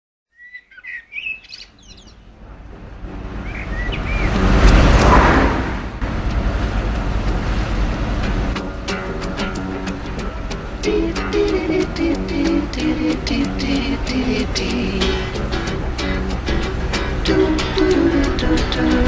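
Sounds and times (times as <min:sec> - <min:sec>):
birds chirping: 0:00.3 - 0:04.6
car passing by: 0:01.8 - 0:19.0.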